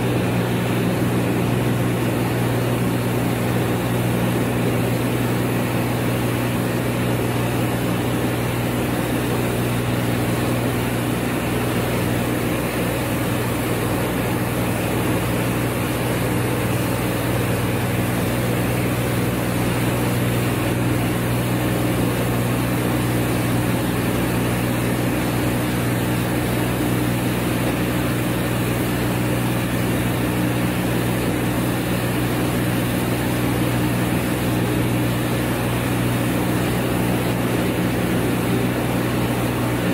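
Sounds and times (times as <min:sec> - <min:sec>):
rice milling machine humming: 0:00.0 - 0:39.9.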